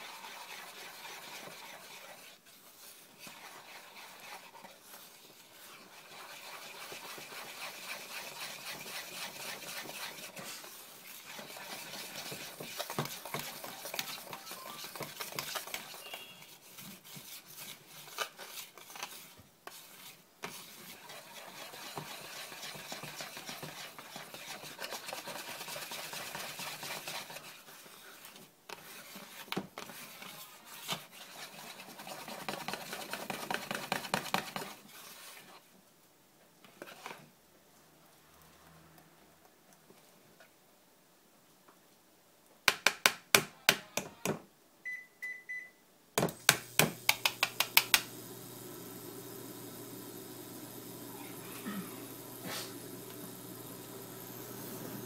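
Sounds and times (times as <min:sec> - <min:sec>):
whisk beating batter in bowl: 0:00.0 - 0:35.6, 0:46.5 - 0:50.8.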